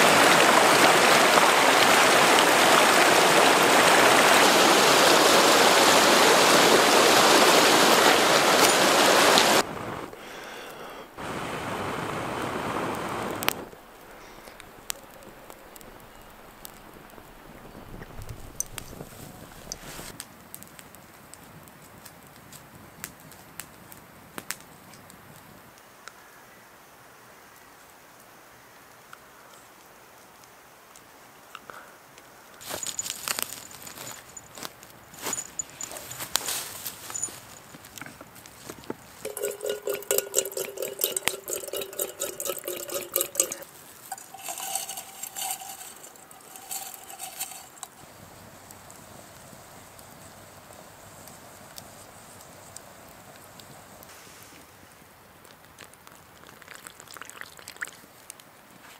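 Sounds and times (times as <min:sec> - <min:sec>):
campfire crackling and popping: 0:12.3 - 0:25.5, 0:32.8 - 0:54.1, 0:55.1 - 0:58.5
metal kettle clinking: 0:39.2 - 0:48.0
water pouring into metal kettle: 0:39.2 - 0:48.0.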